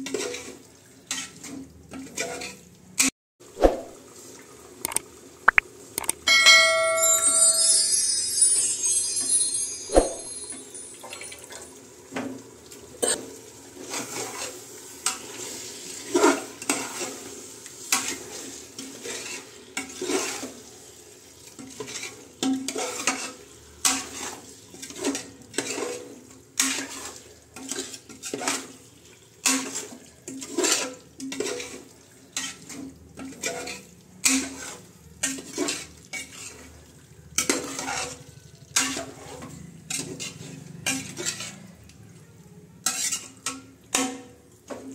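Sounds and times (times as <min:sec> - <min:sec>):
metal spoon scraping a pot: 0:18.8 - 0:20.6, 0:21.7 - 0:28.8, 0:29.4 - 0:31.8, 0:32.4 - 0:36.8, 0:37.4 - 0:41.8, 0:42.8 - 0:44.3.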